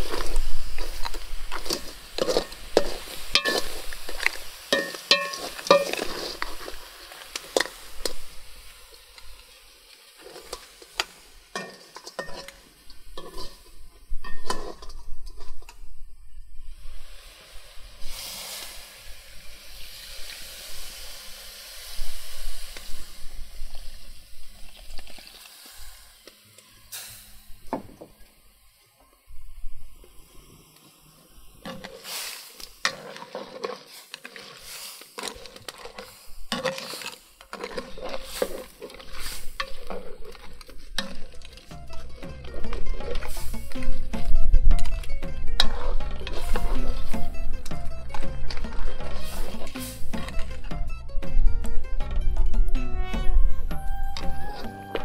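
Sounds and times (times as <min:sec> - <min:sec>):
ladle scraping and knocking pot: 0:00.0 - 0:08.2, 0:10.2 - 0:15.8, 0:32.8 - 0:51.8
food sizzling: 0:00.0 - 0:55.0.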